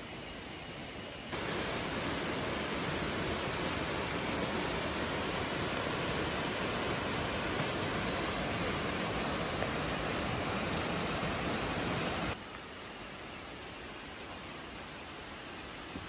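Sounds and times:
steady hiss: 0.0 - 16.0
water rushing over boulders: 1.3 - 12.7.

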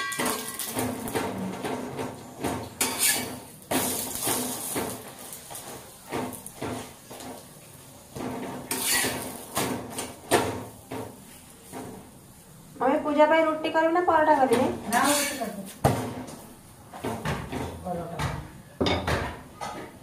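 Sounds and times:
utensil scraping in a pot: 2.8 - 5.9, 8.6 - 9.4, 14.9 - 15.8.

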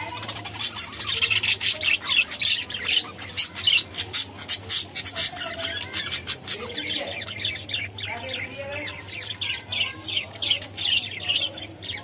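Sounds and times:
budgerigars chirping: 0.0 - 12.0.

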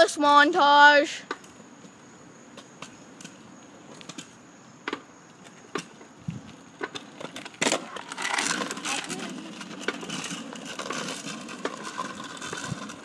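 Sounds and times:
scooter wheels rolling on pavement: 0.0 - 13.0.

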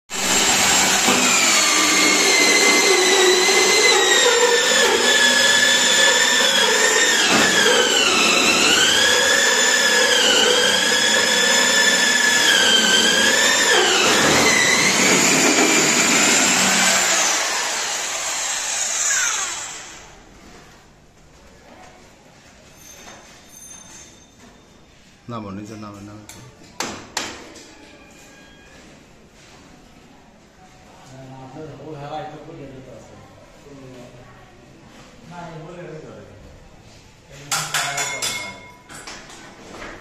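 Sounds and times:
hammer drill whining: 0.2 - 20.1.

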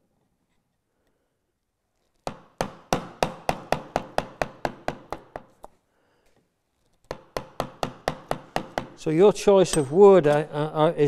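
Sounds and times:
mallet striking chisel: 2.2 - 5.6, 7.1 - 9.0.

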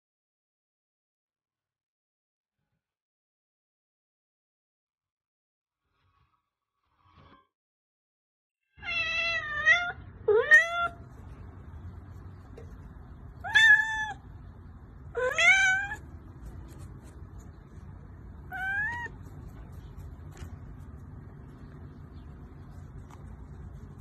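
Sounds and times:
kitten meowing: 8.8 - 11.0, 13.4 - 14.2, 15.1 - 16.1, 18.5 - 19.3.

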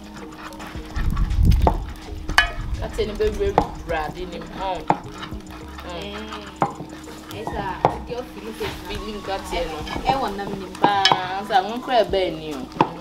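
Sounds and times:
grinding in clay bowl: 0.0 - 13.0
ladle stirring soup in pot: 0.0 - 13.0.

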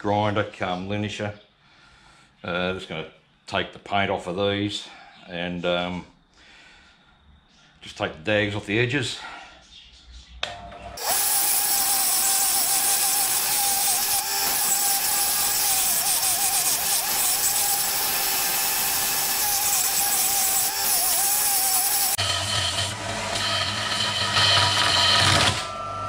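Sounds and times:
motor whine: 11.0 - 23.5
belt sander grinding metal: 11.0 - 26.0.

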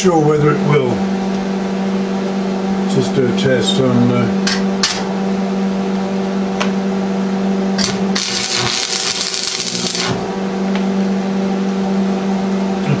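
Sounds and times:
electrical hum: 0.0 - 13.0
arc welder crackling: 7.8 - 10.8.

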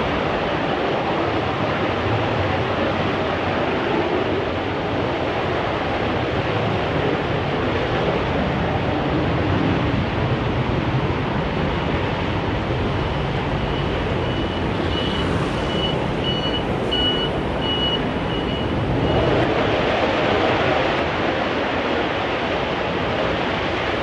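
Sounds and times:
steady rushing roar: 0.0 - 24.0
reversing alarm beeping: 13.0 - 19.4.

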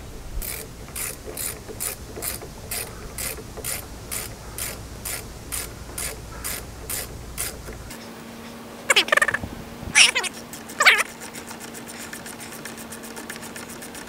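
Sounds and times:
socket ratchet clicking: 0.4 - 7.9.

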